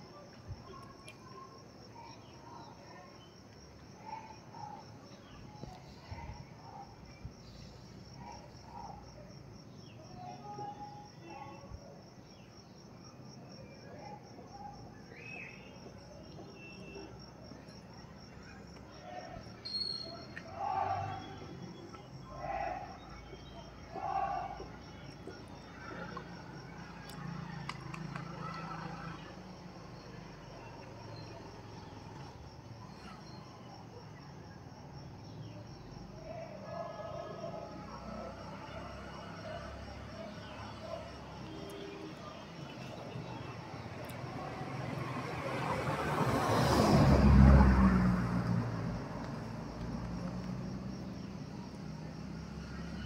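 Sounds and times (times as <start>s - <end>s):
insect chirping: 0.1s - 53.0s
faint clicks: 27.0s - 28.8s
vehicle passing by: 43.0s - 53.0s.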